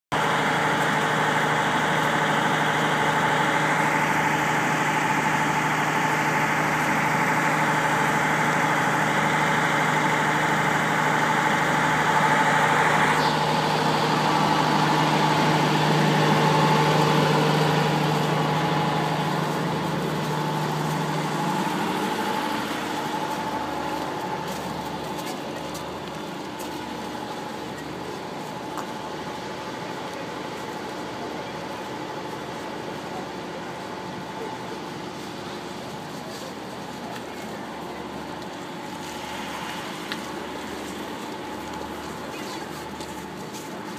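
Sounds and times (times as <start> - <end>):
train idling low hum: 0.1 - 43.9.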